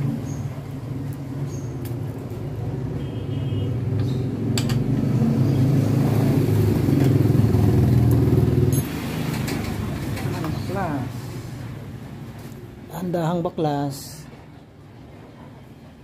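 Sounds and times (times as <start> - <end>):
engine running with low hum: 0.0 - 10.1.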